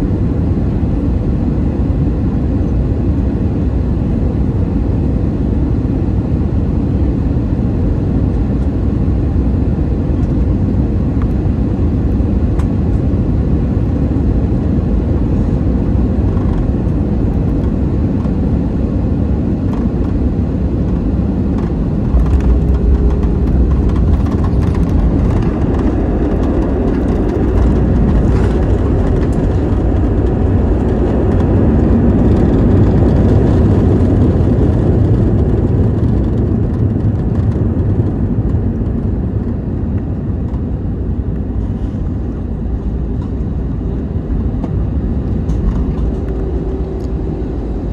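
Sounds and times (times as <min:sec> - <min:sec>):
jet engine and airflow rumble: 0:00.0 - 0:47.9
wheels rolling on runway: 0:19.4 - 0:47.9.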